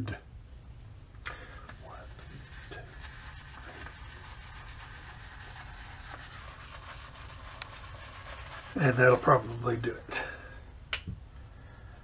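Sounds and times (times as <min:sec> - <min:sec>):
low room hum: 0:00.0 - 0:12.0
shaving brush swishing on soap: 0:01.7 - 0:09.6.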